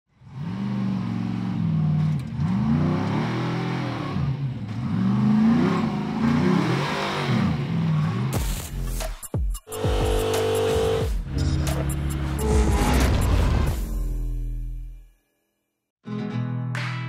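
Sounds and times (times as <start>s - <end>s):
race car engine revving: 0.1s - 8.7s, 9.7s - 13.8s.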